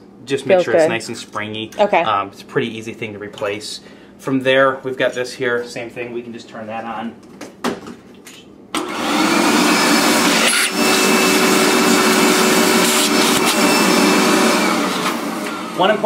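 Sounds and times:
shop vac motor whining: 8.8s - 16.0s.

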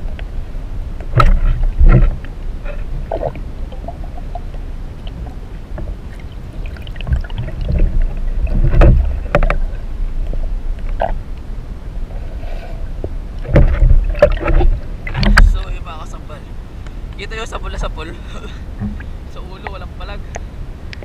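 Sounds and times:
muffled underwater rumble: 0.0s - 16.5s, 17.6s - 21.0s
sharp clicks and knocks: 8.5s - 9.6s, 13.4s - 15.6s.

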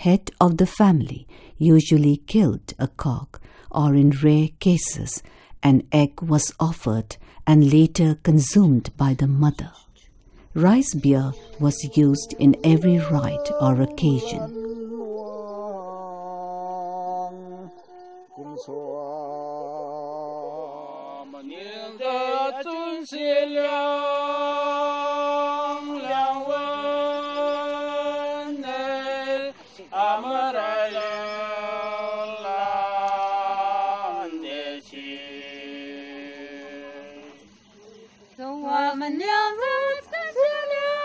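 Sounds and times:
chanted singing: 10.6s - 41.0s.

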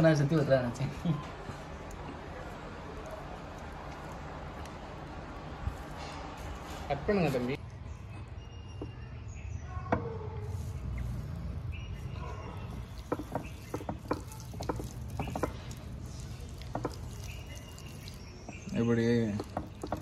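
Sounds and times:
hands slapping wet dough: 12.9s - 20.0s.

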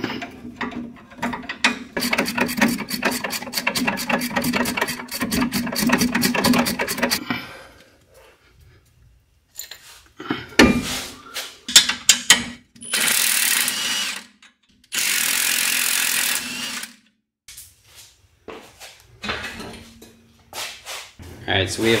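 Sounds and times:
metal tool clicks and knocks: 0.2s - 5.4s
power tool spinning a bolt: 1.2s - 7.2s, 12.9s - 17.0s.

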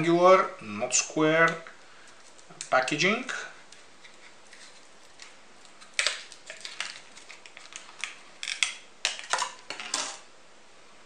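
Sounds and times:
plastic clamshell clicks and crackles: 5.2s - 9.8s.

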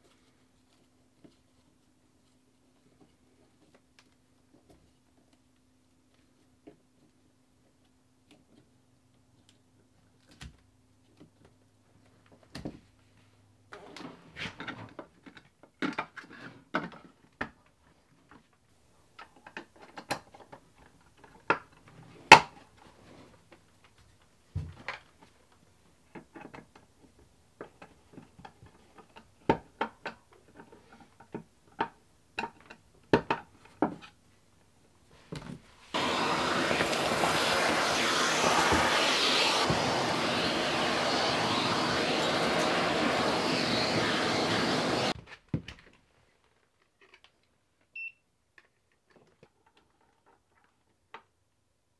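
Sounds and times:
clicks and taps of wiring work: 19.2s - 22.5s
vacuum cleaner running: 36.0s - 45.2s.

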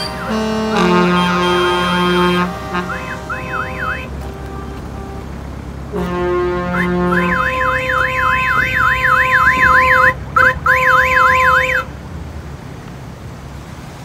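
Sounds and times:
electronic siren warbling: 0.0s - 5.2s, 6.7s - 11.8s
steady two-note tone: 0.0s - 11.8s.

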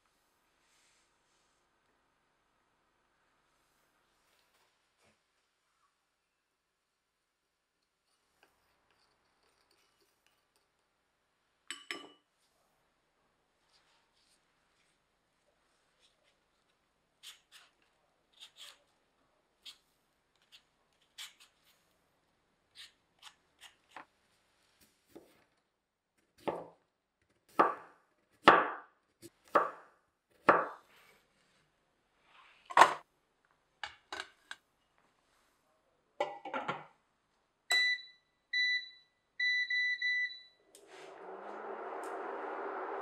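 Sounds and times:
cooktop touch control beeps: 37.7s - 40.6s
cooktop whirring: 40.6s - 43.0s.

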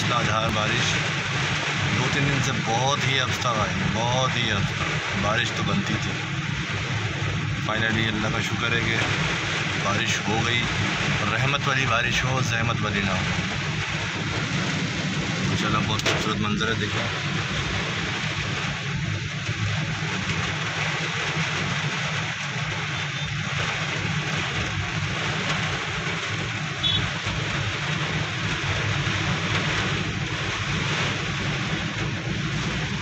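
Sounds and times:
heavy rain on car roof: 0.0s - 33.0s.

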